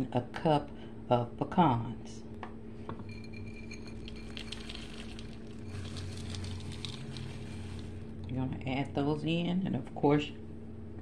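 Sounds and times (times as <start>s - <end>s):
nut pieces pattering into dough: 4.0s - 8.0s.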